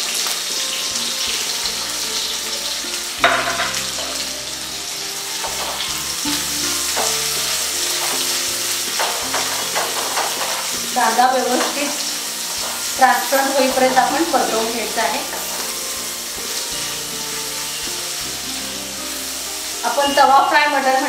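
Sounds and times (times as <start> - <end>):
onions sizzling in hot oil: 0.0 - 21.0
spatula stirring in pan: 5.3 - 19.8.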